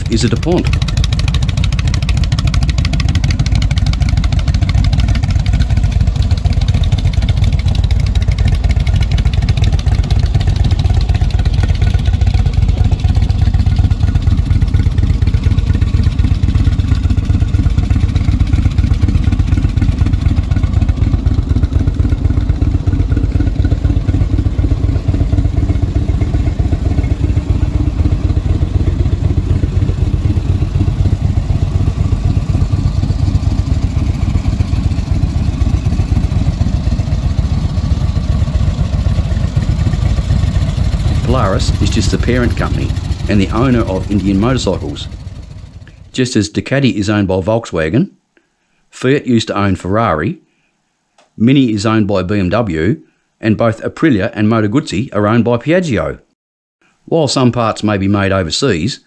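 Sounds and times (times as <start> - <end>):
motorcycle engine idling: 0.0 - 46.2.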